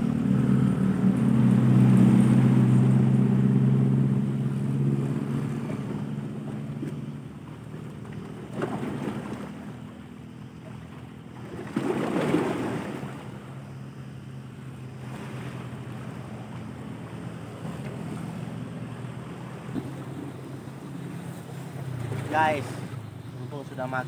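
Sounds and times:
waves washing against rocks: 11.4s - 13.4s, 21.5s - 23.0s.

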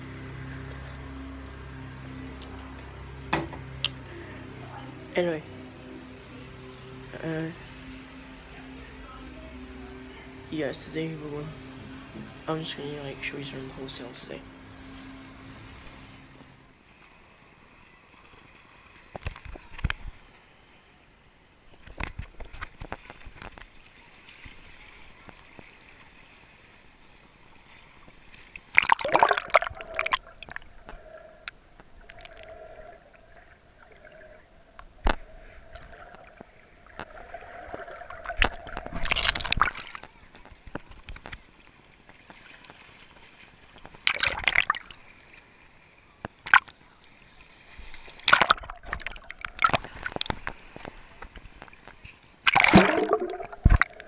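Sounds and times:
water sloshing and gurgling: 0.0s - 54.0s
loud water splashes: 28.6s - 31.0s, 32.1s - 40.1s, 44.0s - 45.1s, 48.0s - 50.9s, 52.4s - 54.0s.

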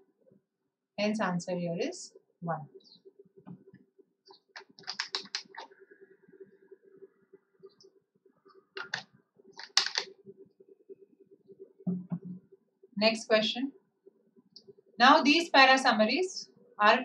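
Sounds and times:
faint steady hum: 0.0s - 17.0s
sharp clicks and taps: 4.5s - 5.7s, 8.8s - 10.1s.

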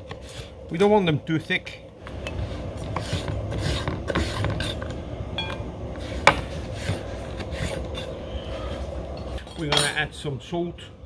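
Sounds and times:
knife rasping on cutting board: 2.9s - 4.8s.

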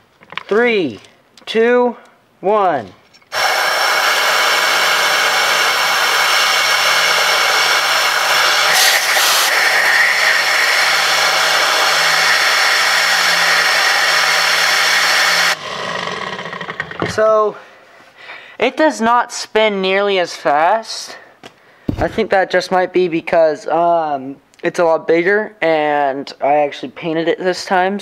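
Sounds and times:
compressed air rushing hiss: 3.3s - 16.8s
spinning rotor whine: 3.3s - 17.2s.

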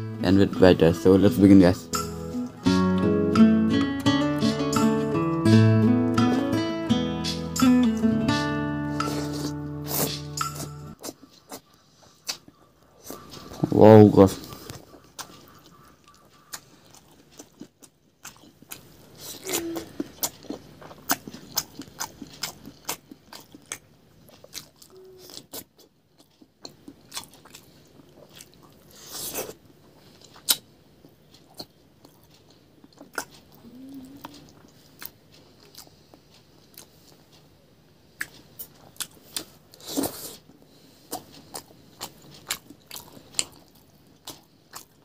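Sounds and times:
person chewing crunchy food: 8.9s - 13.6s, 14.4s - 37.5s, 38.1s - 45.0s.

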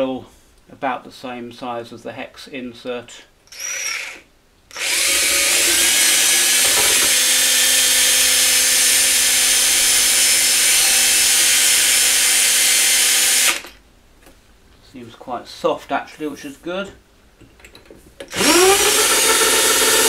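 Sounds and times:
electric drill boring into metal: 3.5s - 13.8s, 18.3s - 20.0s.

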